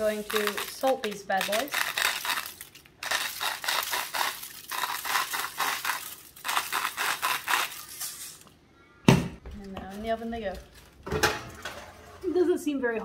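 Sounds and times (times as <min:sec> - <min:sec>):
salt grinder crunching crystals: 0:00.0 - 0:08.4.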